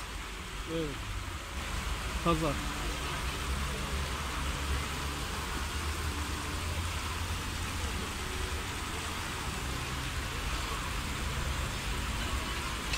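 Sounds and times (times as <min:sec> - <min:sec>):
fountain splashing: 0:00.0 - 0:12.9.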